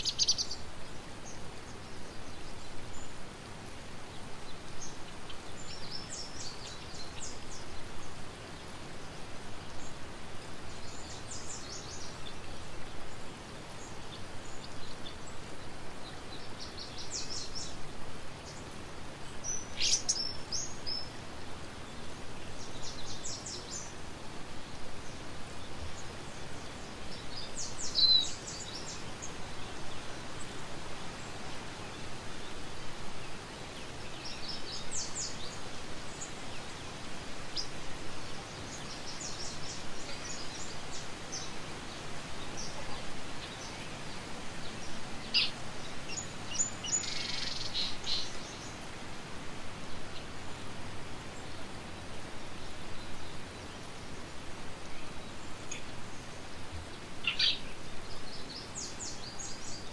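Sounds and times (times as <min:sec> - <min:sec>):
outdoor background hiss: 0:00.0 - 0:59.9
songbird chirping: 0:00.0 - 0:59.9.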